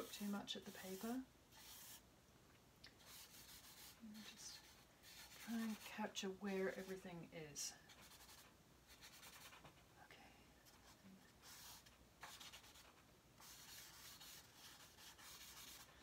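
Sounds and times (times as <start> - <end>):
charcoal scratching on paper: 0.0 - 2.0, 3.0 - 6.1, 6.7 - 7.0, 7.9 - 9.7, 10.7 - 15.9.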